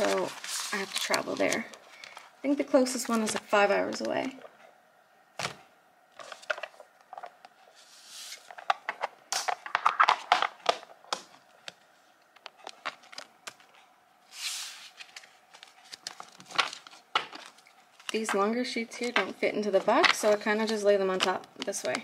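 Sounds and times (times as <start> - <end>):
paper rustling and crinkling: 0.0 - 2.3, 6.2 - 11.4, 12.6 - 22.0.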